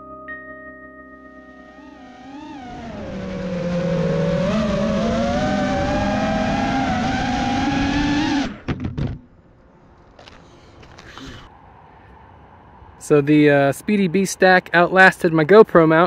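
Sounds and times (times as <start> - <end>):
quadcopter motors buzzing whine: 1.7 - 8.6.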